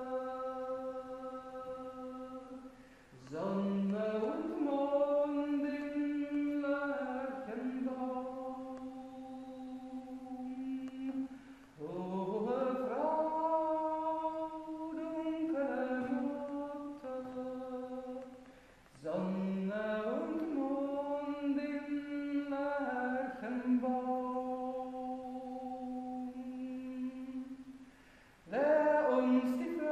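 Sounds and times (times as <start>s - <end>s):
woman singing hymn solo: 0.0s - 18.4s, 28.5s - 29.9s.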